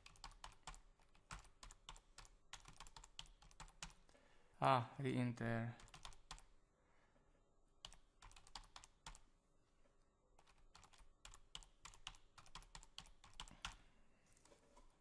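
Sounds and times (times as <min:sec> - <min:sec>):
faint typing on keyboard: 0:00.0 - 0:04.2, 0:05.7 - 0:06.6, 0:07.8 - 0:09.3, 0:10.3 - 0:14.9.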